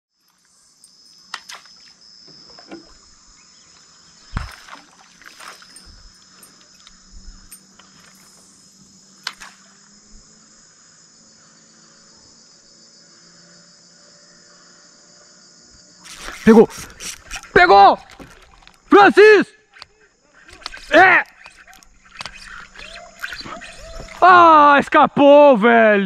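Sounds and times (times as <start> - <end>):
insects chirping: 0.1 - 26.0
dull thump: 4.3 - 4.8.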